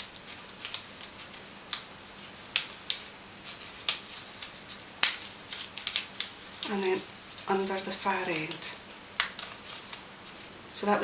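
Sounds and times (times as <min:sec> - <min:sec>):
card pieces clicking and rustling: 0:02.5 - 0:10.4.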